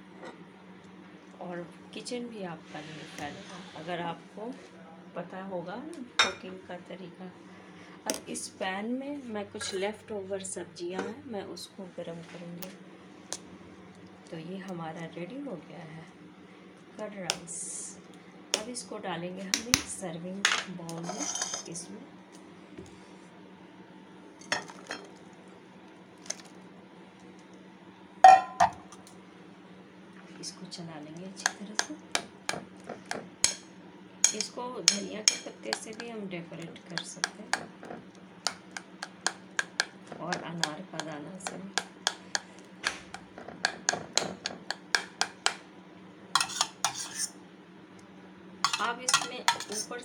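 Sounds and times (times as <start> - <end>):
spoon scraping bowl: 21.0 - 21.5, 31.4 - 33.6, 34.2 - 36.1, 36.8 - 42.5, 43.1 - 45.6, 46.4 - 47.4, 48.6 - 49.9
spoon clinking against dishes: 28.2 - 28.8, 33.4 - 36.1, 46.4 - 47.2, 48.6 - 49.9.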